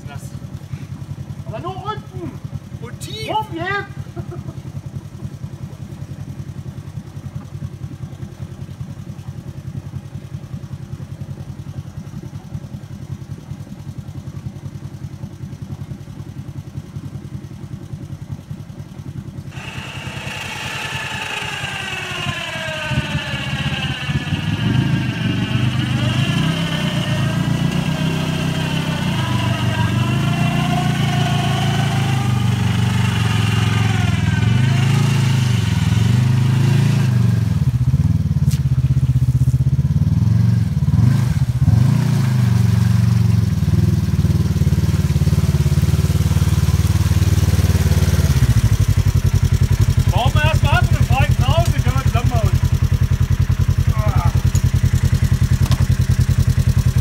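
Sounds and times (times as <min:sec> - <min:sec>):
engine idling: 0:00.0 - 0:57.0
engine revving: 0:19.5 - 0:57.0.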